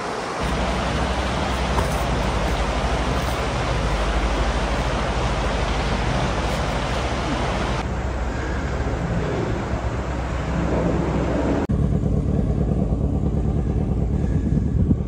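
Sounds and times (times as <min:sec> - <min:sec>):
steady rushing noise: 0:00.0 - 0:15.0
motorcycle engine running: 0:11.7 - 0:15.0.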